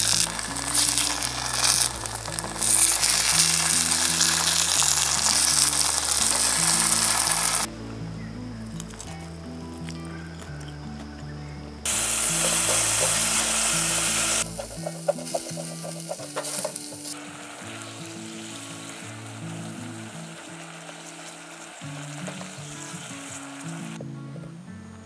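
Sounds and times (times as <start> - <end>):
food sizzling in a pot: 0.0 - 7.7, 11.9 - 24.0
background music: 0.0 - 25.0
spatula scraping a pot: 14.3 - 17.0.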